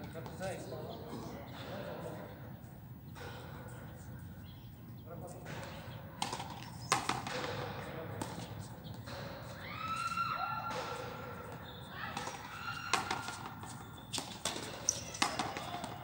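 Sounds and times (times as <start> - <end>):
people calling: 9.5 - 16.0
ball knocking on concrete: 14.2 - 16.0.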